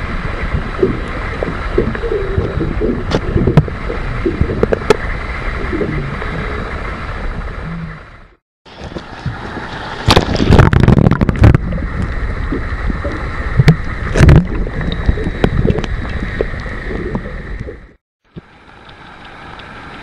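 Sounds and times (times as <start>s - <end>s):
water splashing and gurgling: 0.0s - 20.0s.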